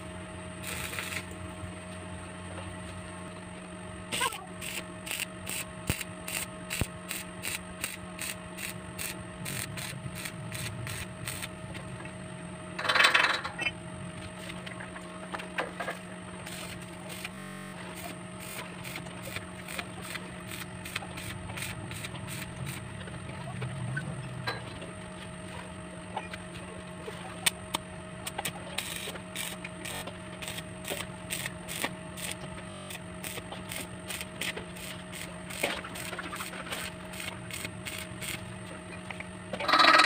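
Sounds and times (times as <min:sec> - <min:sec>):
welding arc humming and ticking: 0:00.0 - 0:40.0
noisy welding burst: 0:00.6 - 0:01.4, 0:04.1 - 0:11.6, 0:16.4 - 0:22.9, 0:28.8 - 0:38.5.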